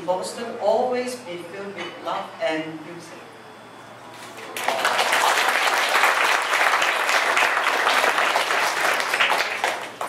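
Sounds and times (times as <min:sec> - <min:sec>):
audience applause: 0:04.4 - 0:10.0.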